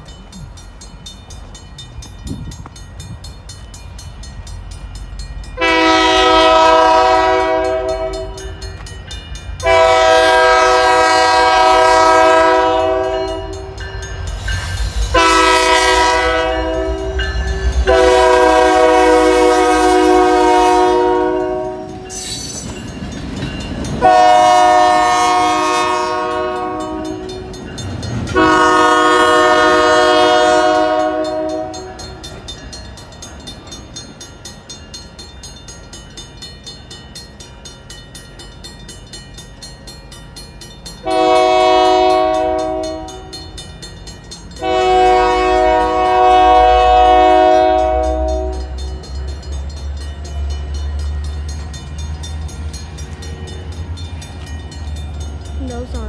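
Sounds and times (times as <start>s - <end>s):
train rumbling past: 0.0s - 56.0s
locomotive air horn blasts: 5.6s - 8.5s, 9.6s - 13.8s, 15.1s - 22.0s, 24.0s - 27.4s, 28.3s - 32.0s, 41.0s - 43.4s, 44.6s - 48.8s.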